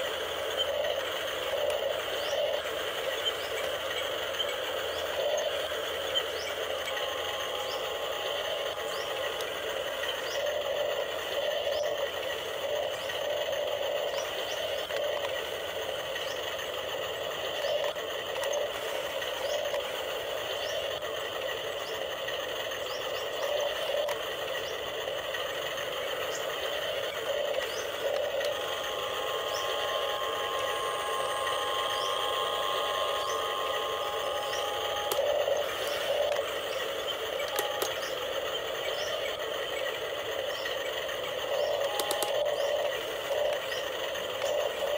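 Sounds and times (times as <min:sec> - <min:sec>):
electric gear motors whirring: 0:00.0 - 0:44.9
steady hum: 0:00.0 - 0:44.9
clicks: 0:29.6 - 0:38.2, 0:41.6 - 0:42.8.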